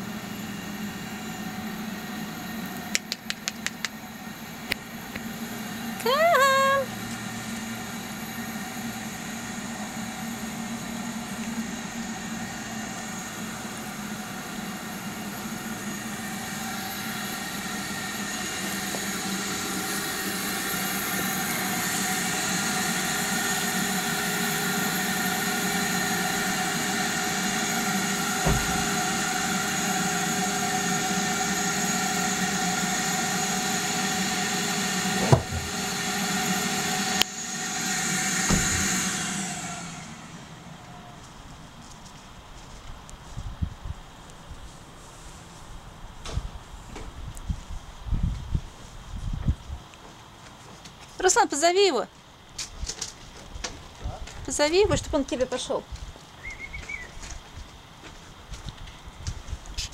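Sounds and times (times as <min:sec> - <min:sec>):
motor droning: 0:00.0 - 0:42.0.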